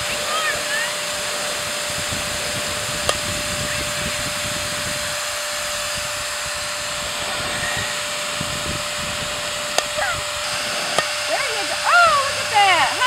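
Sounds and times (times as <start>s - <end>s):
electric blower hissing: 0.0s - 13.0s.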